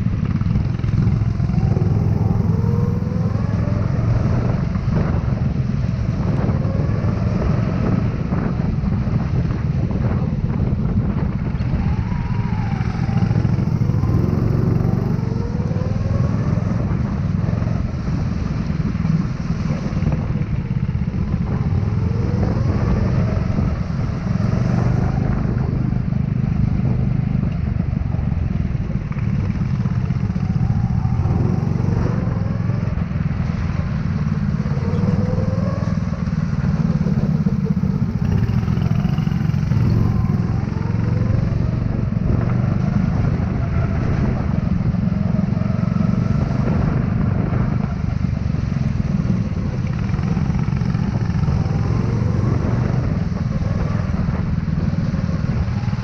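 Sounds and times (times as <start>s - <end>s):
go-kart engine revving: 33.9s - 47.9s.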